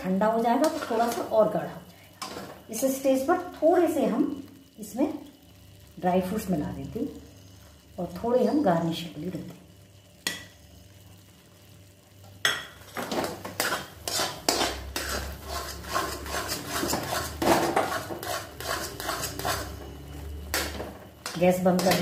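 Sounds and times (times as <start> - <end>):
spoon scraping metal pan: 0.6 - 1.3, 13.4 - 22.0.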